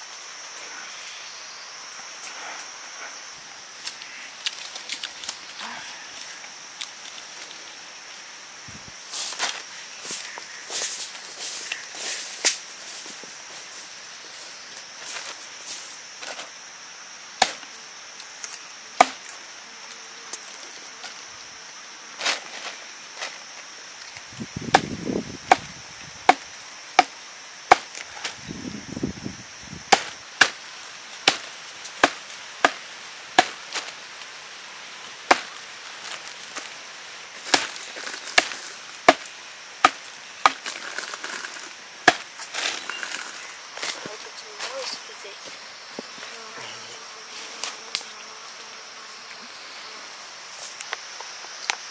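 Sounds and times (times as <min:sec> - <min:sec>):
blade chopping onto wood: 0:24.6 - 0:25.7, 0:27.7 - 0:28.0, 0:29.9 - 0:30.6, 0:31.2 - 0:32.8, 0:33.4 - 0:33.6, 0:35.3 - 0:35.5, 0:42.0 - 0:42.3.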